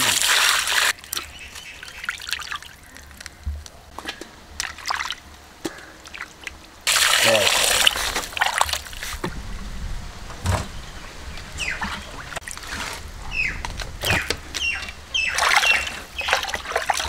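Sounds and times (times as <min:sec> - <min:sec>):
water sloshing in steel basin: 0:04.0 - 0:09.3, 0:11.6 - 0:17.0.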